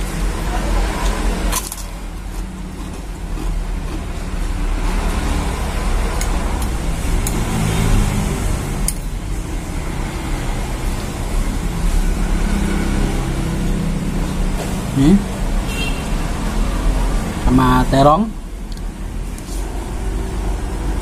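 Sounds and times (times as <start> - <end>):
man chewing: 1.6 - 7.7.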